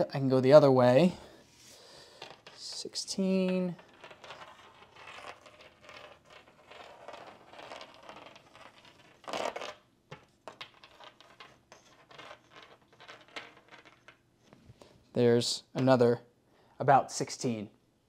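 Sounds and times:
magnet scratching on drywall: 0:03.9 - 0:14.1.

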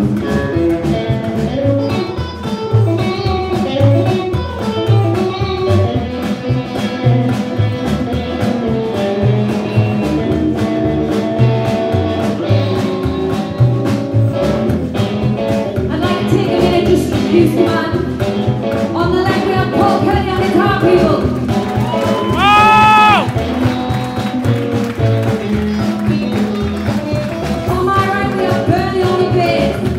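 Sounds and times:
drum kit: 0:00.0 - 0:29.9
electric guitar: 0:00.0 - 0:29.9
upright double bass: 0:00.0 - 0:29.9
woman singing: 0:15.9 - 0:21.5, 0:25.8 - 0:29.9.

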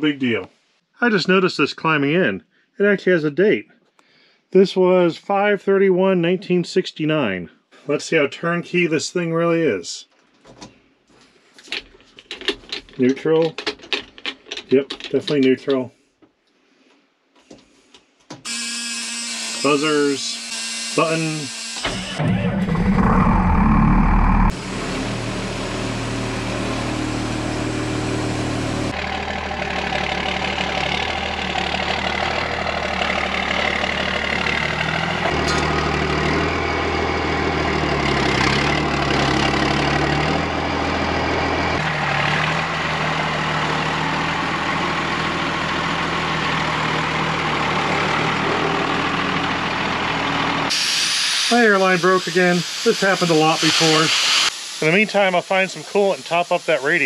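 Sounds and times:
diesel engine starting and idling: 0:21.8 - 0:52.5.

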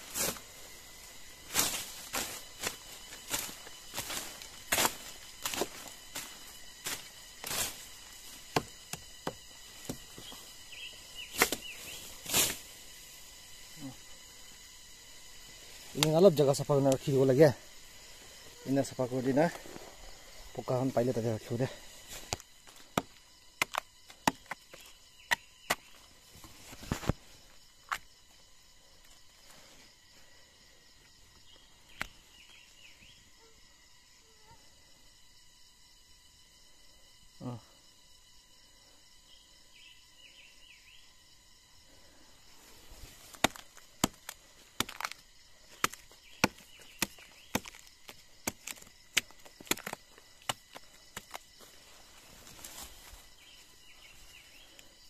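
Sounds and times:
forest insects droning: 0:00.0 - 0:55.0
blade chopping branch: 0:01.5 - 0:10.4, 0:11.3 - 0:12.6, 0:43.2 - 0:51.4
rotten wood snapping: 0:15.9 - 0:16.2, 0:43.2 - 0:51.5.

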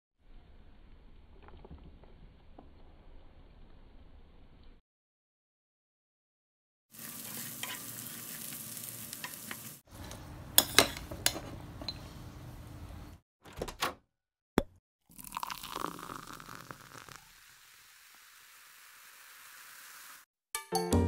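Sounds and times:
tofu sizzling in oil: 0:06.9 - 0:09.9, 0:16.5 - 0:20.3
spatula scraping a pan: 0:07.0 - 0:11.6.

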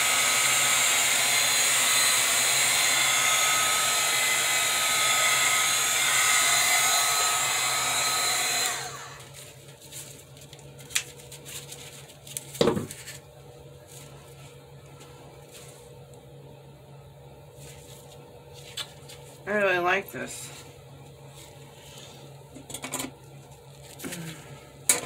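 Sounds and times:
heat gun blowing with fan whine: 0:00.0 - 0:09.5.

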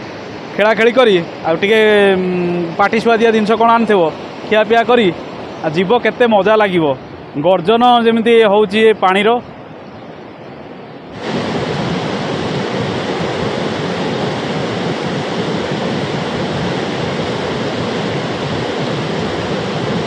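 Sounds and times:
river water rushing over rocks: 0:10.9 - 0:20.0.

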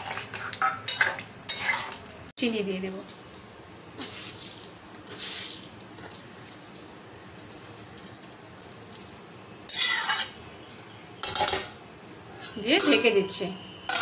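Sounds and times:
metal spatula scraping wok: 0:00.0 - 0:02.1, 0:04.0 - 0:06.8, 0:09.7 - 0:14.0.

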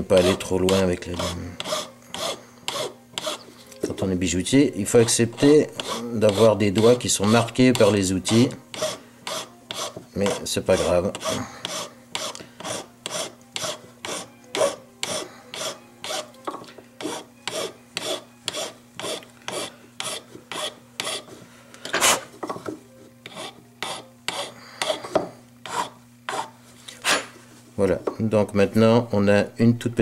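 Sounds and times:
hand file rasping on metal: 0:00.0 - 0:03.5, 0:04.9 - 0:16.3, 0:17.0 - 0:21.4, 0:23.2 - 0:25.0, 0:25.6 - 0:27.3.

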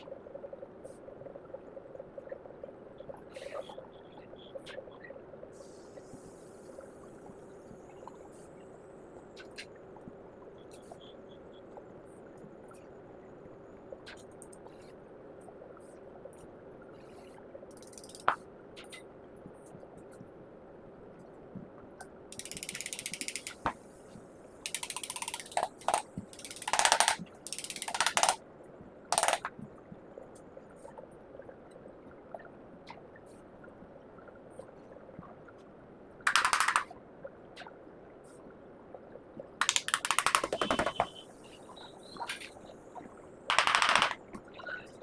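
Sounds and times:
rapid ratcheting clicks: 0:17.7 - 0:18.3, 0:22.3 - 0:23.7, 0:24.6 - 0:28.4, 0:29.1 - 0:29.5, 0:36.3 - 0:36.9, 0:39.6 - 0:40.9.

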